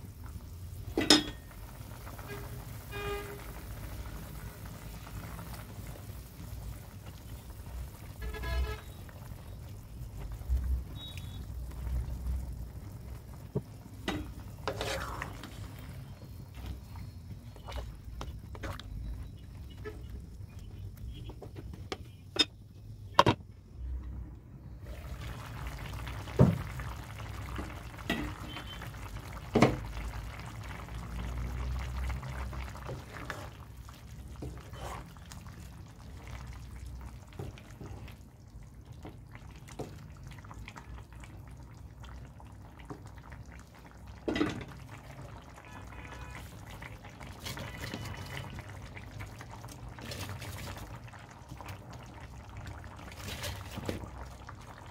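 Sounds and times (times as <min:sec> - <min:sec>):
curry sizzling and bubbling: 0:00.0 - 0:54.9
spatula scraping pan: 0:14.6 - 0:15.3.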